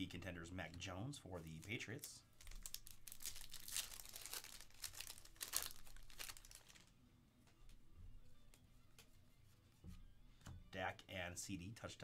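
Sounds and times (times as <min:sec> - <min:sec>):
plastic wrapper crinkling and tearing: 0:01.6 - 0:06.9.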